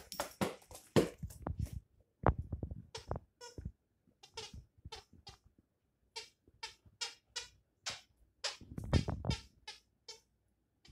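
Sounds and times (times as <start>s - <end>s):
dull thumps of toy and paws: 0.0s - 3.7s, 7.9s - 9.5s
squeaky toy squeaking: 2.9s - 3.6s, 4.2s - 5.5s, 6.1s - 10.9s.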